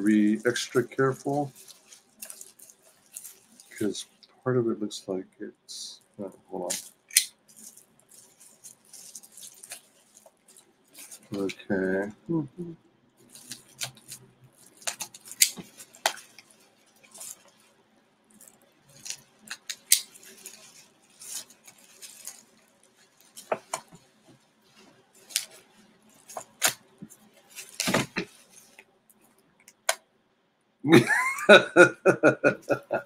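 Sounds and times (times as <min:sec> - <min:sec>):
packaging being opened by hand: 0:00.1 - 0:04.0, 0:06.6 - 0:11.6, 0:13.2 - 0:17.7, 0:18.3 - 0:24.1, 0:24.8 - 0:30.0.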